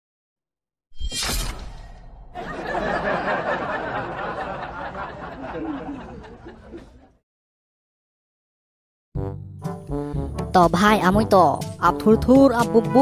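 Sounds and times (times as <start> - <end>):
sound effect hit: 1.0 - 2.5
group laughing: 2.4 - 7.2.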